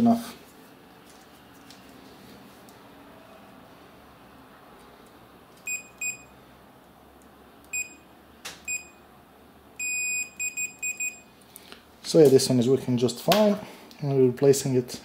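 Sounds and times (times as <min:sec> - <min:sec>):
multimeter continuity beeps: 0:05.7 - 0:06.3, 0:07.7 - 0:08.0, 0:08.7 - 0:09.0, 0:09.8 - 0:11.3.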